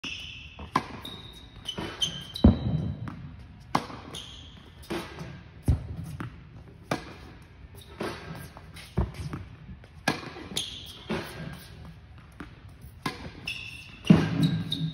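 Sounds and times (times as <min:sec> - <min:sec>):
shoe squeaks: 0:00.0 - 0:03.1, 0:04.0 - 0:05.3, 0:07.7 - 0:09.4, 0:10.2 - 0:11.9, 0:12.8 - 0:14.9
tennis ball struck and bouncing: 0:00.6 - 0:14.9.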